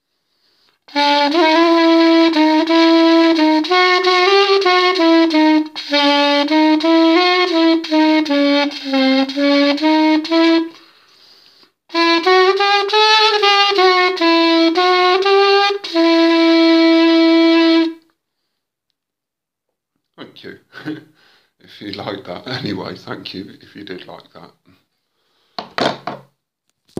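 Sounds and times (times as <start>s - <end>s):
reed instrument playing melody: 0.9s - 10.8s, 11.9s - 18.0s.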